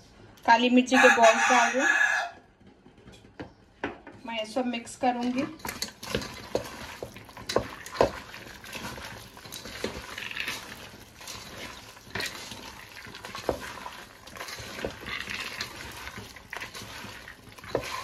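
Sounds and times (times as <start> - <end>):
wet squelching and rustling: 5.6 - 18.0.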